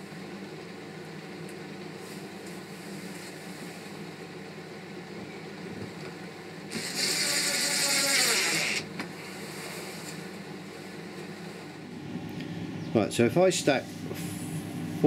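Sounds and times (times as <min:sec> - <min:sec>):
steady low hum: 0:00.0 - 0:15.0
drill click: 0:06.7 - 0:08.8
drill driving a screw into wood: 0:06.7 - 0:08.9.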